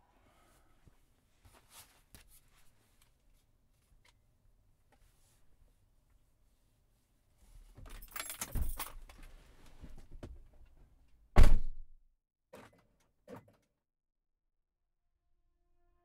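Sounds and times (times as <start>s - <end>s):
rustling and handling objects: 0.8s - 10.2s
loud thunk: 11.4s - 11.8s.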